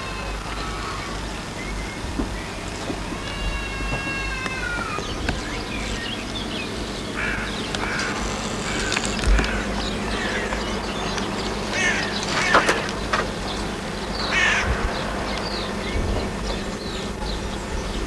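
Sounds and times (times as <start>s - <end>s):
animal calls: 2.8s - 13.1s.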